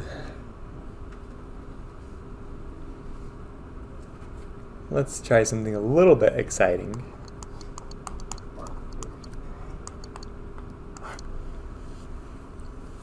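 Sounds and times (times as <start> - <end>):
stylus tapping on a touchscreen: 6.9 - 11.3.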